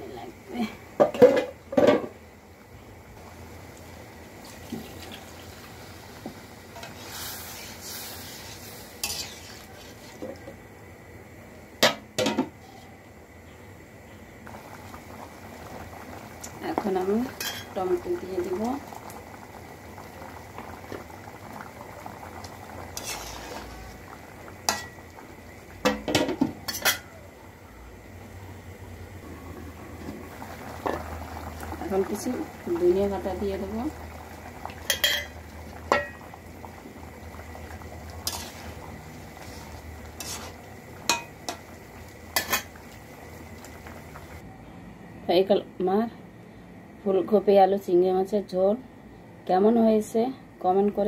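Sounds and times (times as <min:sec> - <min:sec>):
water hissing in hot wok: 0:03.0 - 0:10.5, 0:14.4 - 0:28.4, 0:29.3 - 0:44.4
utensil clattering against wok: 0:24.7 - 0:25.0, 0:41.1 - 0:41.6, 0:42.4 - 0:42.7
metal clanks against pan: 0:34.9 - 0:35.3, 0:41.1 - 0:41.6.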